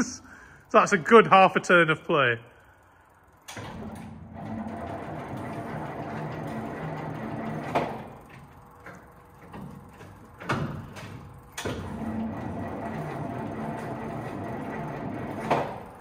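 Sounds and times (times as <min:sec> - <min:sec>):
engine cranking without firing: 0:02.1 - 0:16.0
starter clunks: 0:03.4 - 0:16.0.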